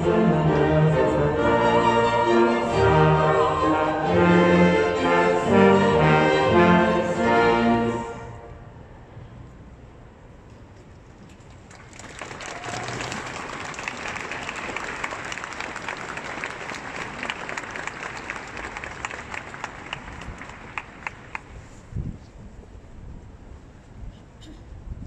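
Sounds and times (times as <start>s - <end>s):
audience applause: 11.6s - 21.5s.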